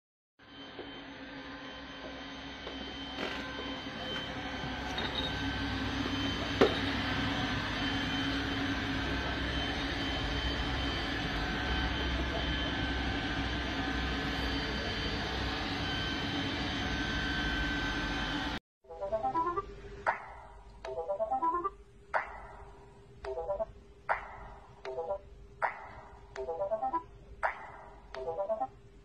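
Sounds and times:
robot vacuum cleaner whirring: 0:00.4 - 0:18.6.

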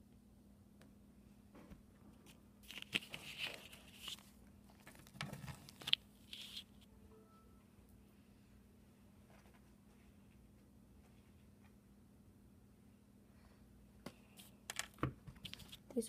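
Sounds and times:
handling rustling and scraping: 0:02.2 - 0:06.9, 0:14.3 - 0:15.9.

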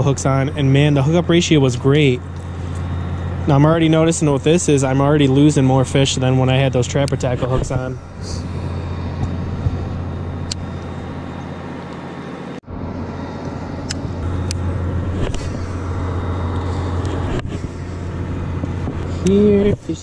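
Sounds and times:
boat motor humming: 0:00.0 - 0:20.0.

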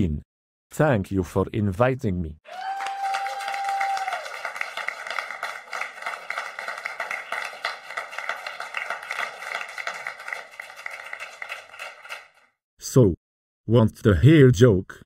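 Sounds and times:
audience applause: 0:02.5 - 0:12.5.

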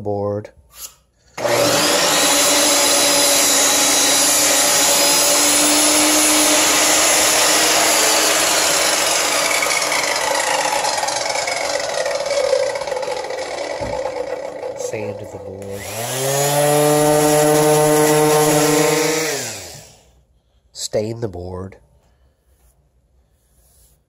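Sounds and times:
table saw whining: 0:01.4 - 0:20.1.

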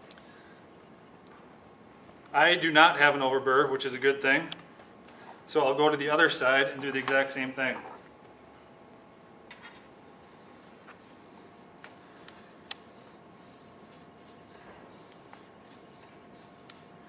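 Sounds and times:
stone rubbing along skate blade: 0:10.2 - 0:17.0.

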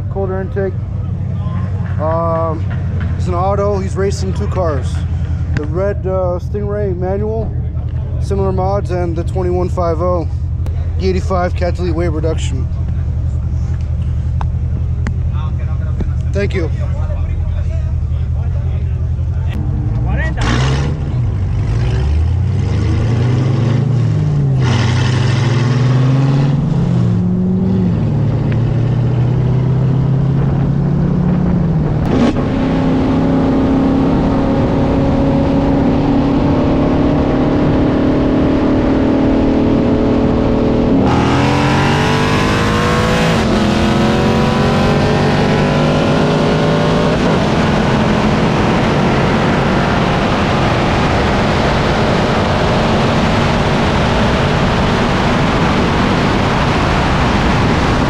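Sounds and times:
sports car engine revving: 0:00.0 - 0:58.0
rush of wind: 0:22.4 - 0:58.0.

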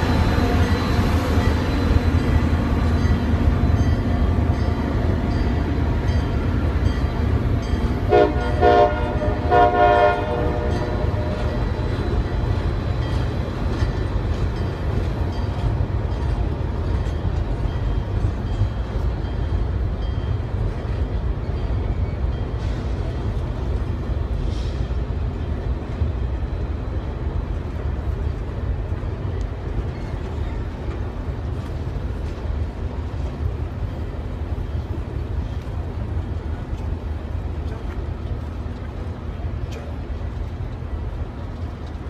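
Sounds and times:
train rumbling over bridge: 0:00.0 - 0:42.0
horn blasts: 0:08.0 - 0:11.6.

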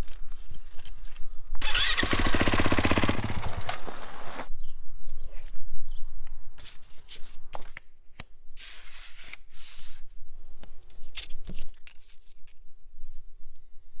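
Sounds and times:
paper rustling: 0:03.6 - 0:04.5, 0:10.9 - 0:12.6.

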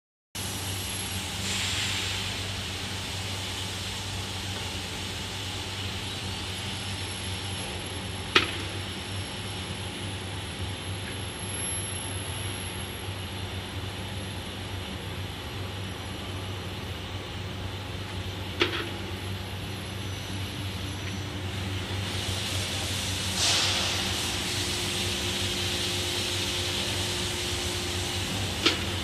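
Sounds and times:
machine hum and hiss: 0:00.4 - 0:29.0.

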